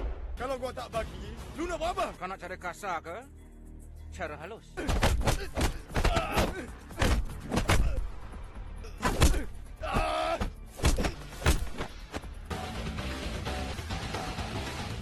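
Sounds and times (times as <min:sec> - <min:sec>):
background music: 0:00.0 - 0:15.0
fighters shouting: 0:04.8 - 0:08.0, 0:08.9 - 0:11.2
punch and hit effects: 0:10.8 - 0:12.0.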